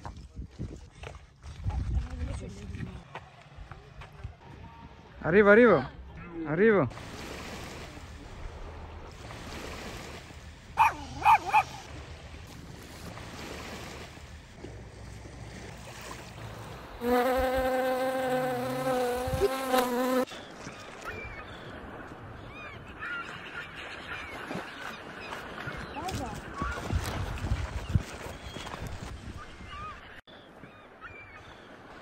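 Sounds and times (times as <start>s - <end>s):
flying insect buzzing: 17.0s - 20.3s.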